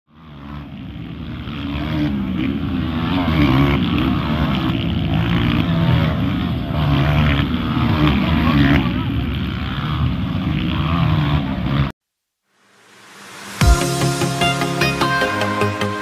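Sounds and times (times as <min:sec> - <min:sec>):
dirt bike engines revving: 0:00.1 - 0:11.9.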